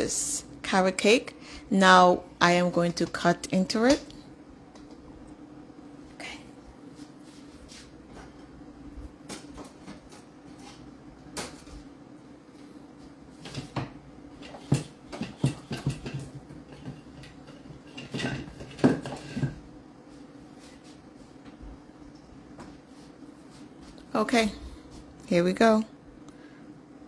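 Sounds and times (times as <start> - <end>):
low steady hum: 0.0 - 27.0
dishes and utensils clinking: 14.4 - 19.6.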